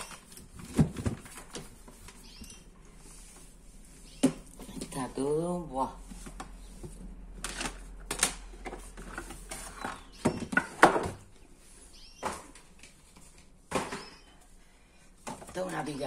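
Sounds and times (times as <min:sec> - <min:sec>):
plastic containers clattering: 0:00.0 - 0:02.0, 0:06.0 - 0:11.3, 0:12.2 - 0:14.4.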